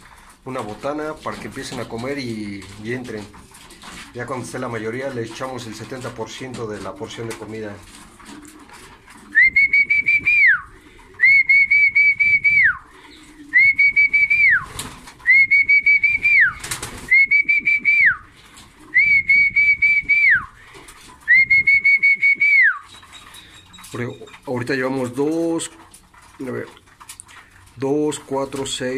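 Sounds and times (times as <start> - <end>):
trilled whistles: 9.3 - 12.8, 13.5 - 18.2, 18.9 - 20.6, 21.3 - 24.3.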